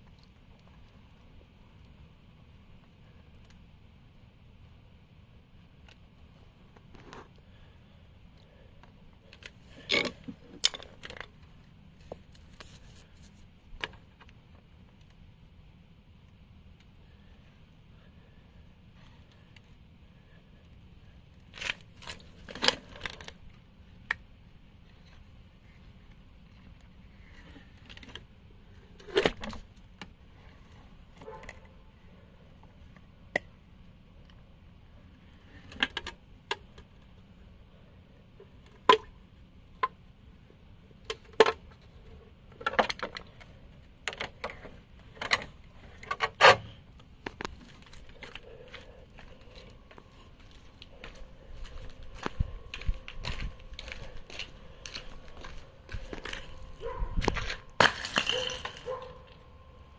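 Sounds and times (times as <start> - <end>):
ice cracking and scraping: 57.2 - 58.9.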